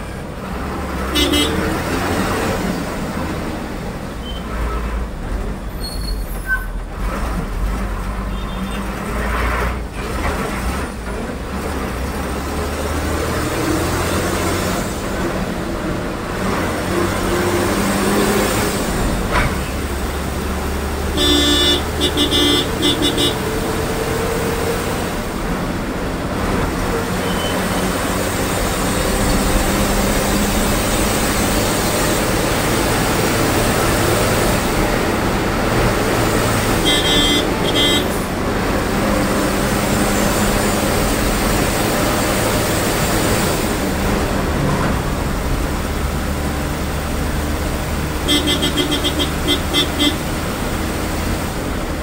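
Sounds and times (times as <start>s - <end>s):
bus diesel engine: 0.0s - 52.0s
traffic: 0.0s - 52.0s
horn tooting: 1.1s - 1.8s, 21.1s - 23.6s, 36.6s - 38.3s, 48.2s - 50.4s.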